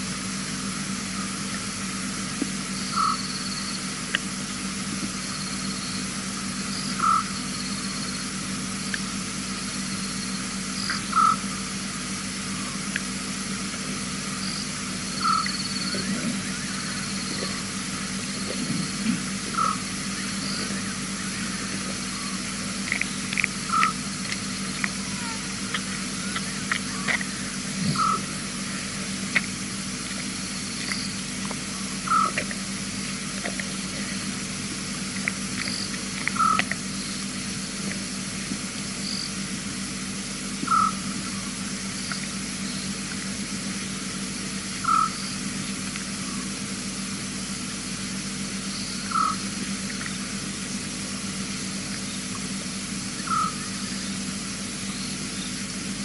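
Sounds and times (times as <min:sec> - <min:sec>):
low hum: 0:00.0 - 0:56.0
steady hiss: 0:00.0 - 0:56.0
fainter higher animal call: 0:15.1 - 0:22.8, 0:24.9 - 0:29.2, 0:53.2 - 0:54.2
short animal call: 0:53.3 - 0:53.8.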